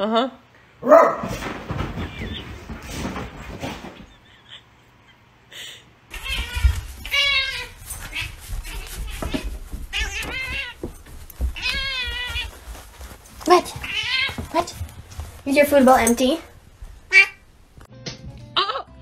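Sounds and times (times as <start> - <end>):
cat meowing: 6.1 - 10.8, 11.6 - 12.6, 13.8 - 14.4.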